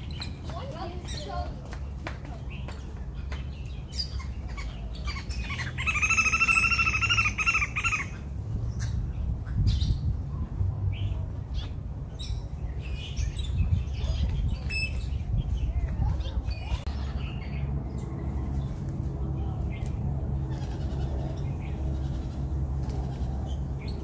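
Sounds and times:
birds chirping and tweeting: 0.0 - 24.0
loud wavering bird call: 5.1 - 8.2.

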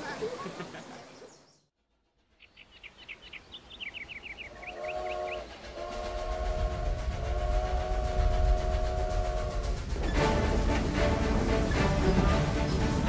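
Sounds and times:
birds chirping: 0.0 - 1.7, 2.4 - 10.2
train rumbling: 1.9 - 13.0
steam locomotive whistle: 4.6 - 12.3.

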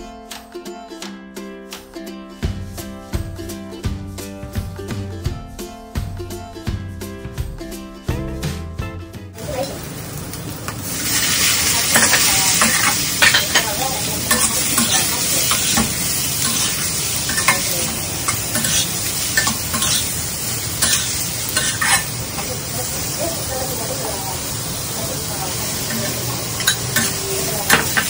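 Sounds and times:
squid sizzling in wok: 9.4 - 28.0
metal spatula scraping wok: 10.9 - 22.6, 25.6 - 28.0.

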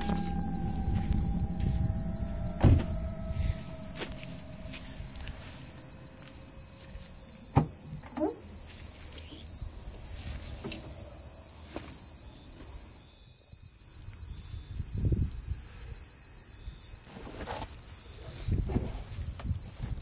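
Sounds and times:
low rumble: 0.0 - 8.2
low thump: 0.0 - 8.2
crickets chirping: 0.0 - 17.1.

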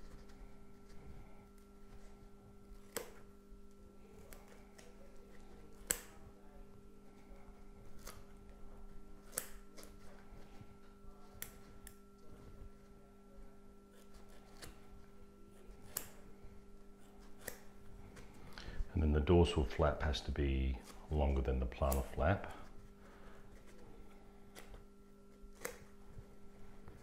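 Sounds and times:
faint electrical hum: 0.0 - 27.0
scissors snipping foam: 2.7 - 3.3, 4.2 - 6.3, 7.8 - 8.5, 9.1 - 10.0, 13.9 - 14.9, 15.5 - 16.3, 17.0 - 17.8, 24.5 - 26.0.

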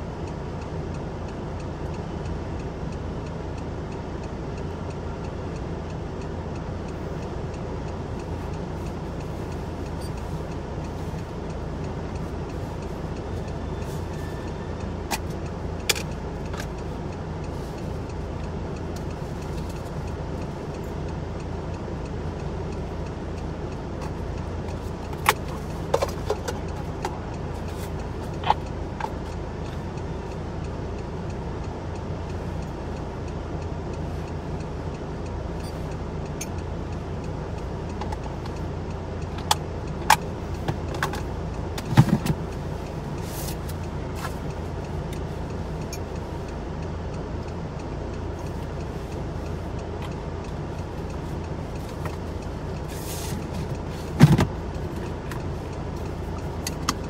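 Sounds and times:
low car engine hum: 0.0 - 57.0
sharp clicks and taps: 35.6 - 57.0.

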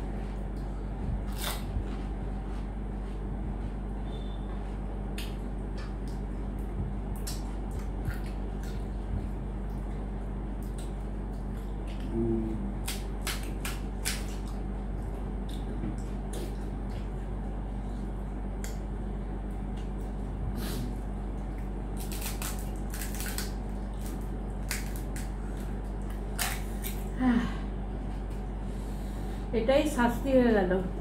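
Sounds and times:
low hum: 0.0 - 31.0
crisp shells cracking: 21.9 - 25.4.

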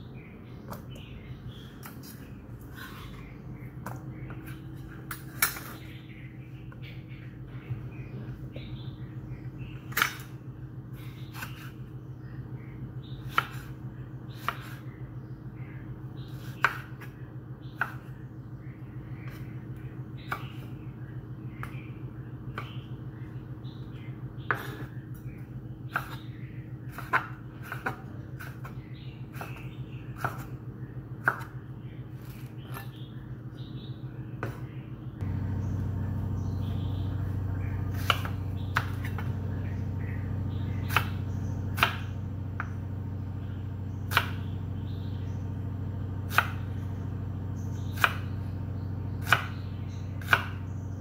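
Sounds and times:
steady low hum: 0.0 - 51.0
knife chopping on wooden board: 13.2 - 13.7, 16.3 - 17.1, 17.8 - 18.1, 24.5 - 25.0, 25.9 - 30.5, 31.2 - 31.6, 34.4 - 34.7, 37.1 - 42.8, 44.1 - 44.5, 46.3 - 46.8, 47.8 - 48.4, 49.2 - 49.6, 50.2 - 50.6.

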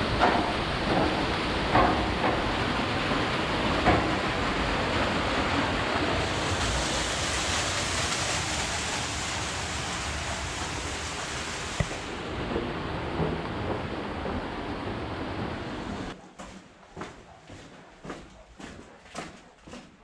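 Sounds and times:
waterfall rushing: 0.0 - 16.2.

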